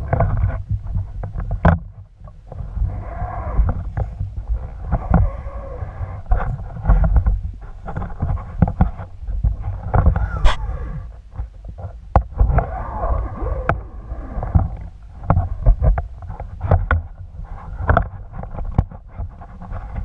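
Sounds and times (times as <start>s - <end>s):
sharp clicks and knocks: 0.0s - 2.4s
underwater water rumble: 0.0s - 20.0s
bubbly wavering sounds: 10.1s - 11.2s, 12.4s - 15.9s.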